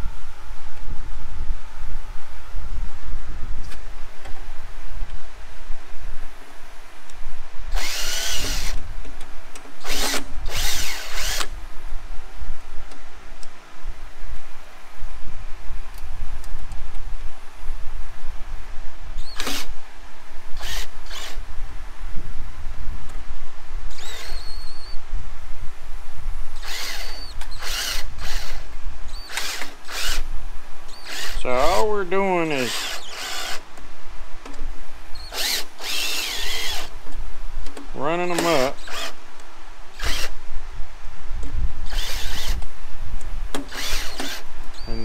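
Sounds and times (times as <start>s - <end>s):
steady low rumble: 0.0s - 24.2s
cordless drill motor revving: 7.7s - 8.8s, 9.8s - 11.5s, 19.2s - 19.7s, 20.6s - 21.4s, 23.9s - 25.0s, 26.6s - 30.2s, 30.9s - 31.9s, 32.6s - 33.6s, 35.2s - 36.9s, 38.3s - 39.2s, 40.0s - 40.4s, 41.8s - 42.6s, 43.6s - 44.9s.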